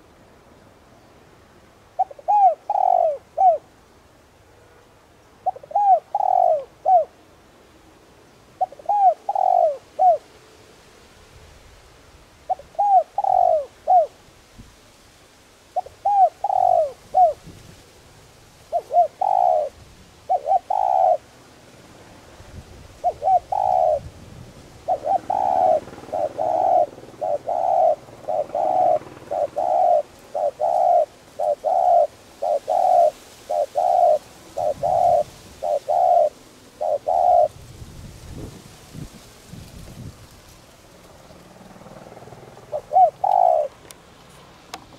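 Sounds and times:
dove cooing: 1.9s - 3.7s, 5.4s - 7.2s, 8.6s - 10.3s, 12.5s - 14.2s, 15.8s - 17.5s, 18.6s - 21.3s, 22.9s - 37.7s, 41.1s - 44.0s.

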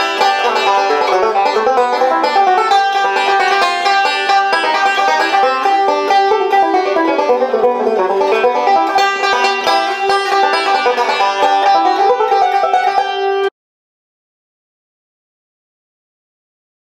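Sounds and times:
banjo picked fast: 0.0s - 13.5s.

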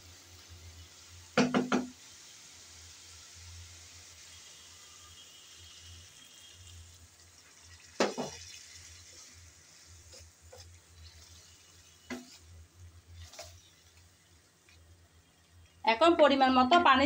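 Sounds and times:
water hissing into hot pan: 0.0s - 15.4s
spatula knocking on pan: 1.4s - 2.0s, 8.0s - 8.4s
wooden spatula stirring pan: 7.4s - 14.9s.

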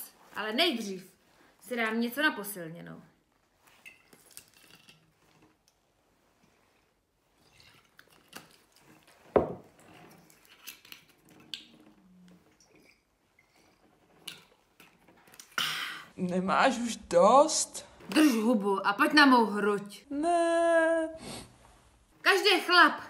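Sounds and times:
bottle knocked onto table: 9.3s - 9.7s.

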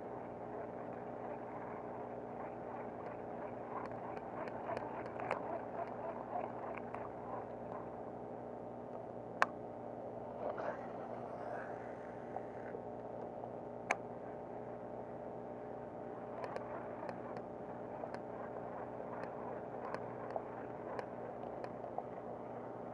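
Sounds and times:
steady mechanical hum: 0.0s - 22.9s
faint ticks: 0.2s - 8.0s, 16.3s - 22.4s
sharp clicks: 16.4s - 18.3s.

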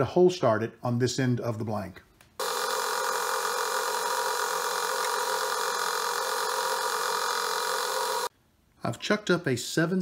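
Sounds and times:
metal lathe whining: 2.4s - 8.3s.

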